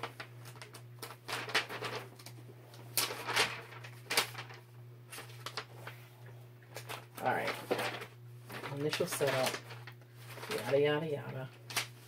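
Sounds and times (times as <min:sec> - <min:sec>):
paper and packaging rustling: 0:00.0 - 0:06.0, 0:06.7 - 0:12.0
steady low hum: 0:00.0 - 0:12.0.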